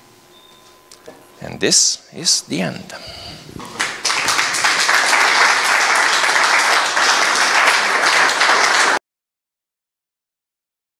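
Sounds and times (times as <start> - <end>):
audience applauding: 3.6 - 9.0.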